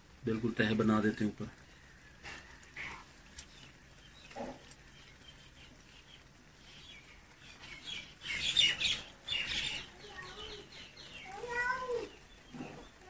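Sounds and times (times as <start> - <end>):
birds chirping: 0.2 - 13.0.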